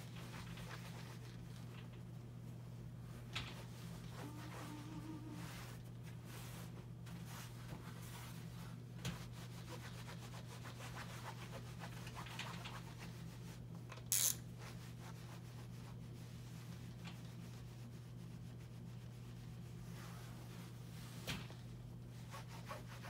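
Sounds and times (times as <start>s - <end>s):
low room hum: 0.0s - 23.0s
iron rubbing over fabric: 3.9s - 8.7s.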